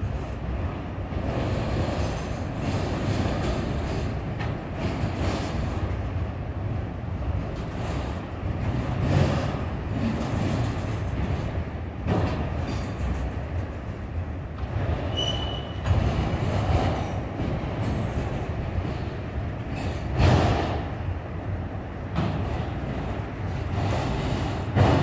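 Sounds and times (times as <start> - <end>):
train wheels rumbling on rails: 0.0 - 25.0
high wheel squeals: 15.1 - 15.8.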